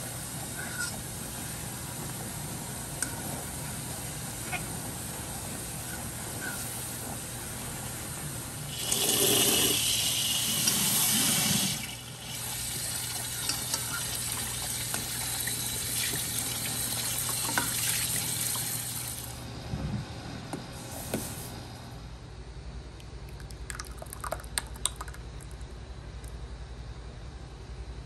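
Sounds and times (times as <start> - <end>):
liquid pouring: 8.7 - 19.3, 23.3 - 25.7.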